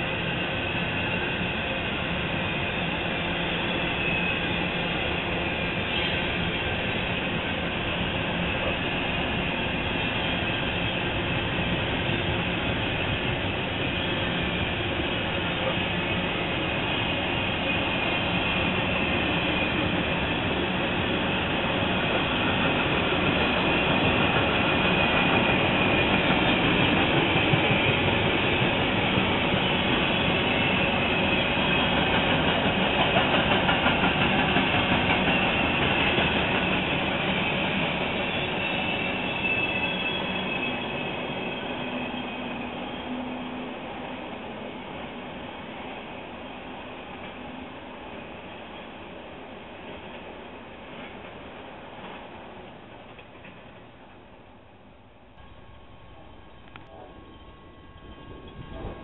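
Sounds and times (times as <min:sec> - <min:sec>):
high wheel squeal: 0:00.0 - 0:20.2, 0:37.5 - 0:43.8
train wheels rumbling on rails: 0:00.0 - 0:59.0.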